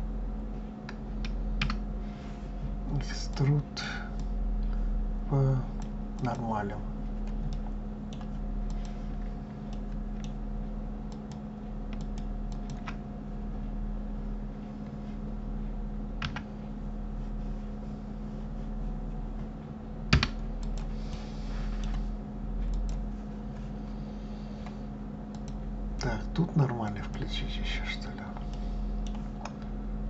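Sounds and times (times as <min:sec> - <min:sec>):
low electrical hum: 0:00.0 - 0:30.0
keyboard and mouse clicks: 0:00.8 - 0:01.8, 0:07.2 - 0:09.0, 0:09.6 - 0:10.4, 0:11.1 - 0:13.0, 0:16.2 - 0:16.5, 0:20.1 - 0:20.9, 0:22.6 - 0:23.0, 0:25.3 - 0:25.6, 0:28.4 - 0:29.7.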